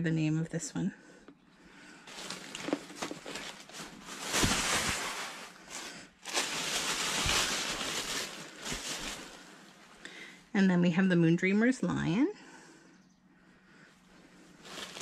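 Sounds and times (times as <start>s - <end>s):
packaging rustling and crinkling: 2.1s - 9.7s, 14.6s - 15.0s.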